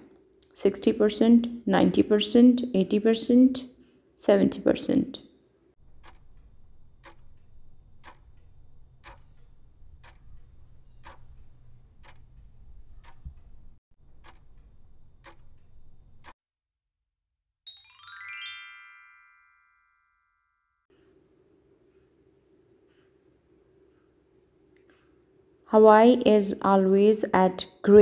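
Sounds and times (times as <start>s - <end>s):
clock ticking: 5.8s - 16.4s
rising chime: 17.7s - 20.8s.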